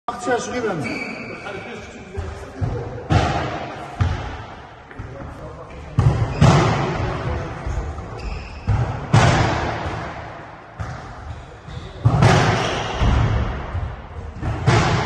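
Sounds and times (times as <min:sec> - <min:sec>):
ball thudding against court walls: 0:08.6 - 0:11.4, 0:12.0 - 0:15.0.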